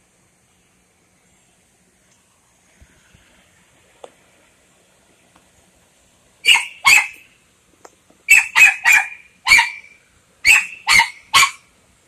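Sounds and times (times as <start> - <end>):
dog barking loudly: 6.4 - 7.3, 8.3 - 11.7.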